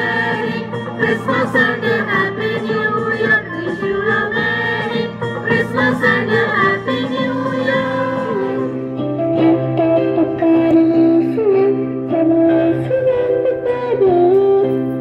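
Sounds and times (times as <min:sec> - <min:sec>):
mixed choir singing a carol: 0:00.0 - 0:08.9
keyboard accompaniment: 0:00.0 - 0:15.0.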